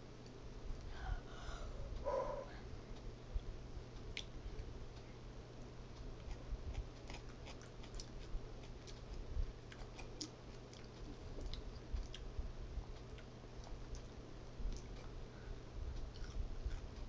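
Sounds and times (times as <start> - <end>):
person chewing crunchy food: 6.2 - 12.3, 16.1 - 17.0.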